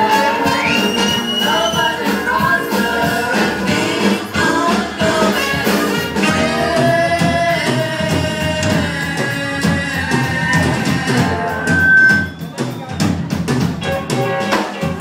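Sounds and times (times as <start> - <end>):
person singing: 0.0 - 11.8
drum kit: 0.0 - 15.0
guitar: 0.0 - 15.0
live band music: 0.0 - 15.0.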